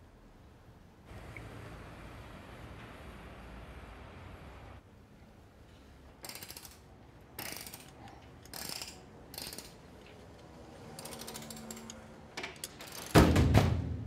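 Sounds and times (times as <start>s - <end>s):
ratchet wrench clicking: 6.2s - 9.8s, 10.9s - 12.0s, 12.6s - 13.2s.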